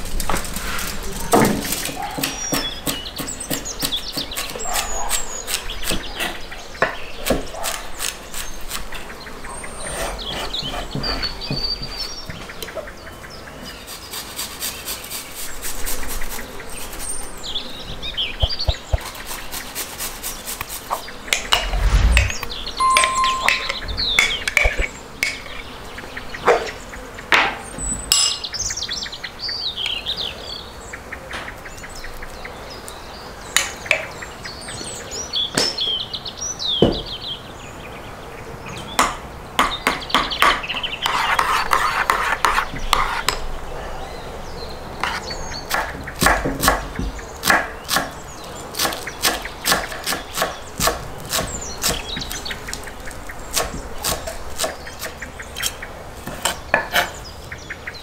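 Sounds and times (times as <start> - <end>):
birds chirping: 20.9 - 27.2, 46.8 - 58.0.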